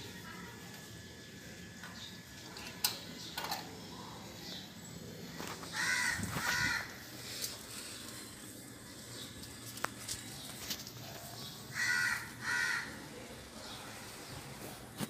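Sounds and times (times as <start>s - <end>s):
crow cawing: 5.7s - 7.1s, 11.7s - 13.2s.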